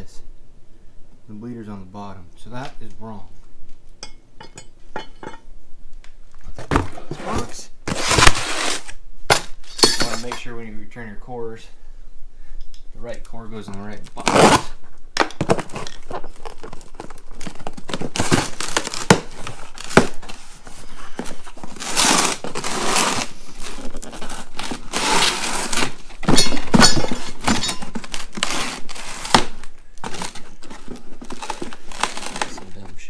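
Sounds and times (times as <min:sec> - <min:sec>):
cardboard boxes crinkling and scraping: 0:06.4 - 0:09.0, 0:14.0 - 0:14.8, 0:15.4 - 0:33.0.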